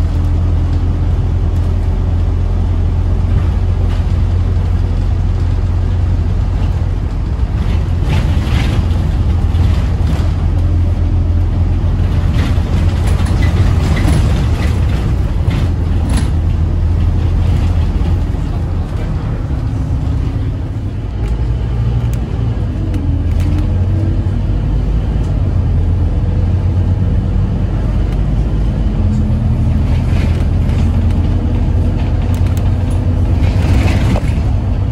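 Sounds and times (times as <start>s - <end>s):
bus diesel engine drone: 0.0s - 34.9s
road noise: 0.0s - 34.9s
body rattles and knocks: 6.4s - 19.4s, 29.2s - 34.9s.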